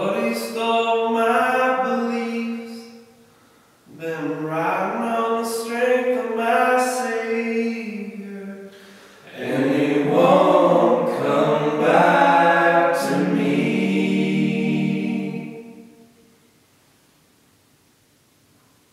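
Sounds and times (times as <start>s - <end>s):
person breathing: 3.2s - 3.9s, 8.6s - 9.3s
men singing in harmony: 9.3s - 15.9s.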